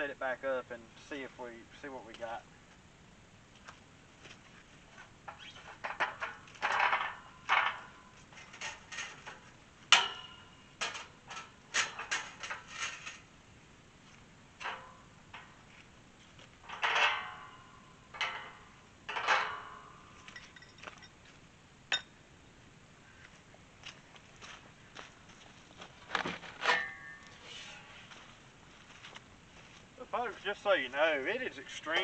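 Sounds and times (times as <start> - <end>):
metal gate clanking and rattling: 5.2 - 13.3, 14.6 - 15.7, 16.6 - 21.2, 26.4 - 27.9.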